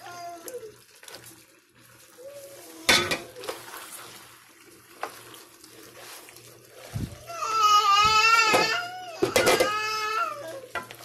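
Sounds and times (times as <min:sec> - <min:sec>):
toddler crying: 0:00.0 - 0:00.8, 0:07.2 - 0:10.8
pot clanking on pan: 0:02.9 - 0:03.3, 0:08.5 - 0:09.8.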